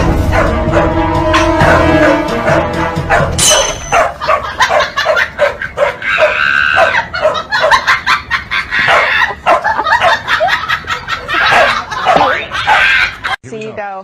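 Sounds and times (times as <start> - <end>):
dogs barking and yapping: 0.1 - 13.4
dog high cry: 3.1 - 13.4.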